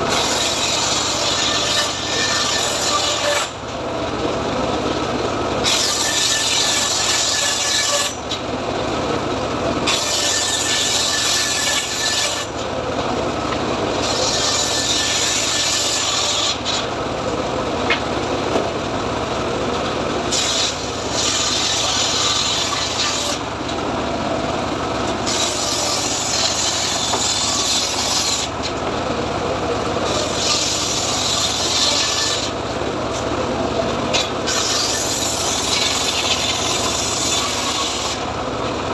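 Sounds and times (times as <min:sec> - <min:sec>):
table saw running free: 0:00.0 - 0:03.6, 0:05.5 - 0:08.4, 0:09.8 - 0:12.8, 0:13.4 - 0:17.0, 0:19.8 - 0:23.8, 0:24.6 - 0:28.8, 0:29.8 - 0:38.7
table saw cutting wood: 0:00.0 - 0:28.8, 0:29.7 - 0:38.9.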